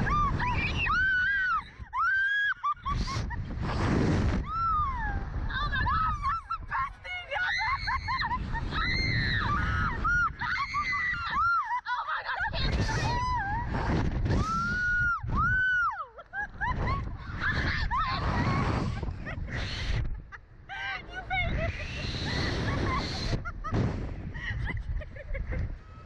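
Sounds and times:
wind rushing over microphone: 0:00.0 - 0:02.1, 0:02.8 - 0:11.6, 0:12.4 - 0:26.0
women screaming and laughing: 0:00.0 - 0:03.5, 0:04.4 - 0:26.0.

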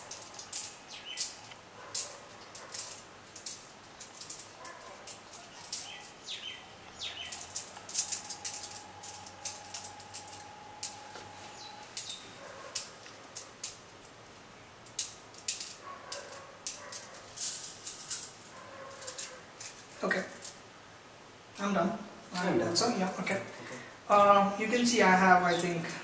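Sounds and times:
glass pebbles clicking: 0:00.0 - 0:14.2, 0:14.8 - 0:20.6.

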